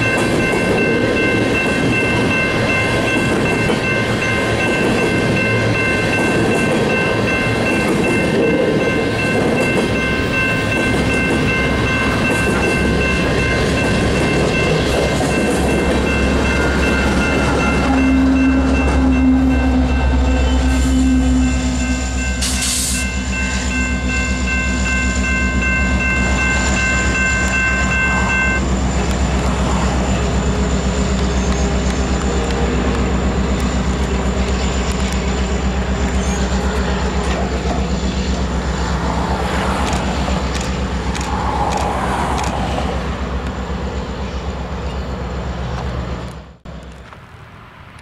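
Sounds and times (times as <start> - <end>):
deep locomotive engine rumble: 0.0 - 48.0
train cars rolling: 0.0 - 48.0
high-pitched wheel squeal: 15.3 - 23.8.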